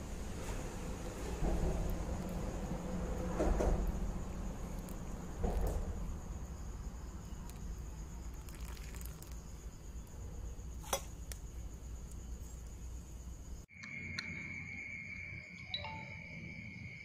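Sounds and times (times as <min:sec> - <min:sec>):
crickets chirring: 0:00.0 - 0:17.0
water pouring into a glass: 0:08.2 - 0:09.6.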